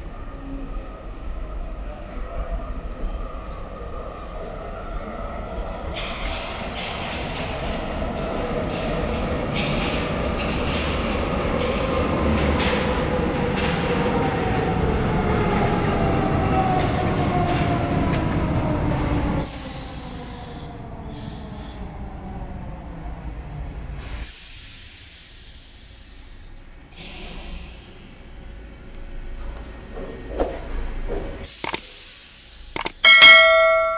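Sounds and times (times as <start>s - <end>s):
air hiss bursts: 24.2s - 27.9s, 31.5s - 33.0s.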